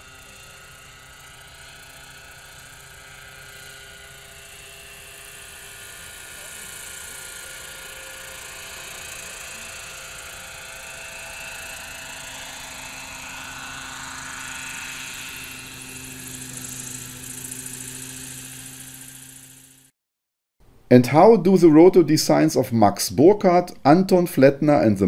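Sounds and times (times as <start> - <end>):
model helicopter engine and rotors: 0.0 - 19.9.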